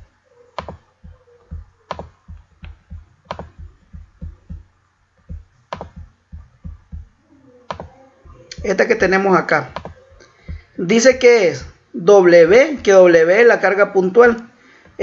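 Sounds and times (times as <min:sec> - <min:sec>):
computer clicks: 0:00.6 - 0:04.6, 0:05.2 - 0:07.1, 0:07.7 - 0:08.8, 0:09.7 - 0:10.7
low thumping: 0:00.6 - 0:11.8.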